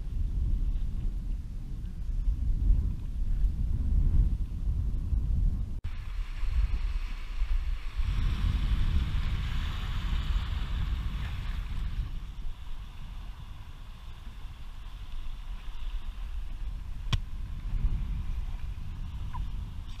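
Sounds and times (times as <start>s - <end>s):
wind buffeting microphone: 0.0s - 20.0s
small waves lapping on shore: 5.9s - 19.2s.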